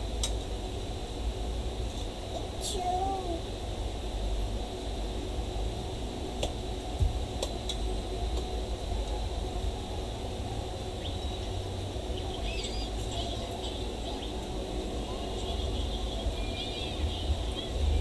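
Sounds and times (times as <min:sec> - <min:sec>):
low background hum and hiss: 0:00.0 - 0:18.0
faint high chirps: 0:11.0 - 0:14.5.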